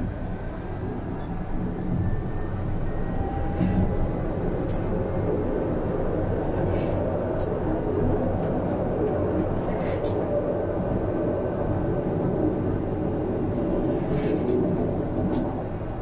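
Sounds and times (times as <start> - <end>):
tram wheels rumbling on rails: 0.0 - 16.0
faint clicks: 9.8 - 10.2.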